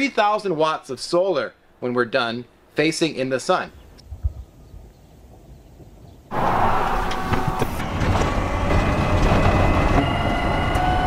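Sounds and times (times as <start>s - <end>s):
vehicle rushing noise: 6.3s - 10.6s
thin high whine: 6.3s - 11.0s.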